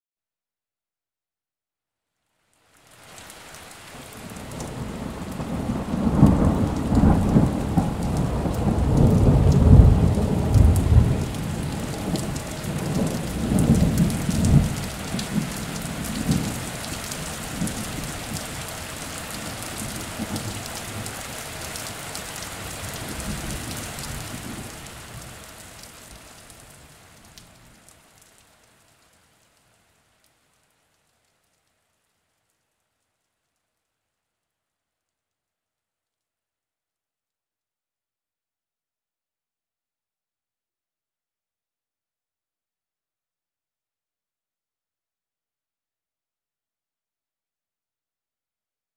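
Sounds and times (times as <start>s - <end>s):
steady rain hiss: 2.2s - 34.3s
low rolling thunder: 4.6s - 21.2s.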